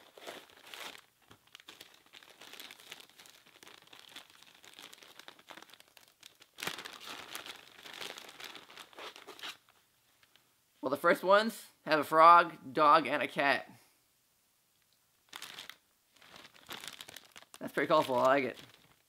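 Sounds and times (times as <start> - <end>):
plastic packaging crinkling: 0.0 - 10.4, 15.3 - 19.0.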